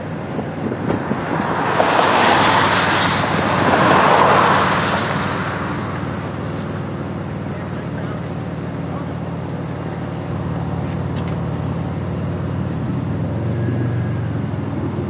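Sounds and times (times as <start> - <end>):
vehicle passing by: 0.0 - 11.0
steady low rumble: 0.0 - 13.4.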